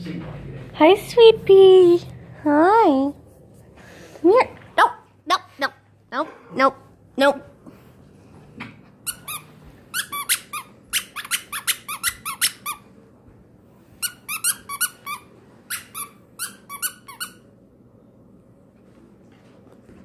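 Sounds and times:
squeaky dog toy squeaking: 9.0 - 12.8, 14.0 - 17.4.

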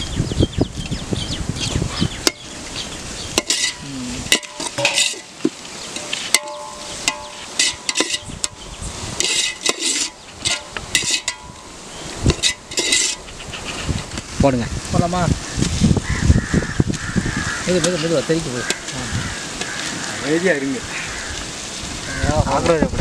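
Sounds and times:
frying sizzle: 0.8 - 22.8
metal ladle scraping a pot: 3.3 - 14.2, 17.6 - 20.1.

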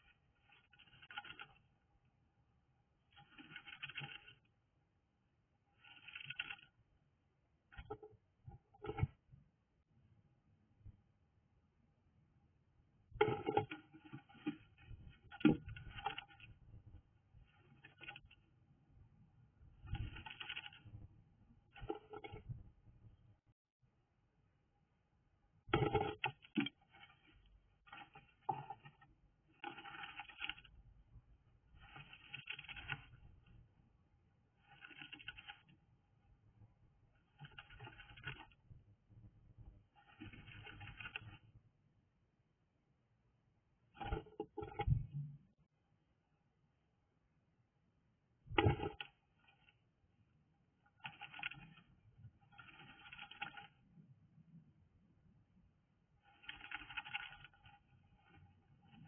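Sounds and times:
bird scratching in nesting material: 0.0 - 1.8, 3.1 - 4.5, 5.7 - 6.8, 13.2 - 18.5, 19.8 - 21.1, 21.7 - 22.6, 25.8 - 30.8, 31.7 - 33.6, 34.5 - 35.9, 37.2 - 38.7, 39.8 - 41.5, 50.9 - 53.8, 56.2 - 59.0.

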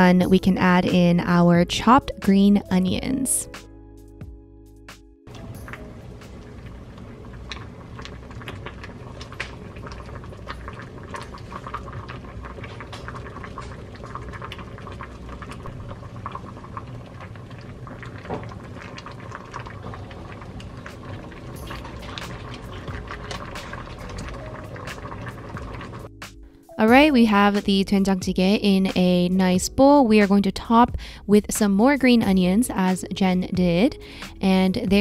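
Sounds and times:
stew bubbling at a boil: 5.3 - 26.1.

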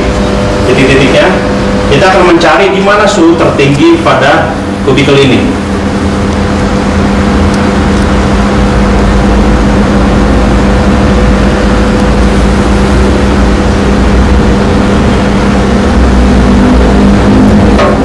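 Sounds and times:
electrical machinery hum: 0.0 - 18.0.

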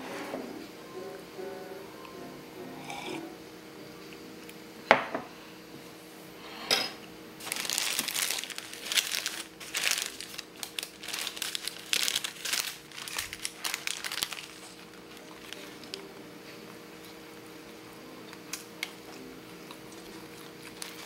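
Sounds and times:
paper wrapper crinkling: 7.4 - 16.0, 20.0 - 21.0.

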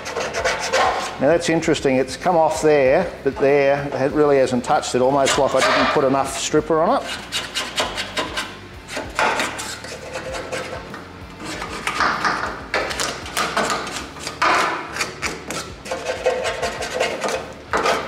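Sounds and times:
hand scraper scraping metal: 0.0 - 1.3, 5.0 - 18.0.

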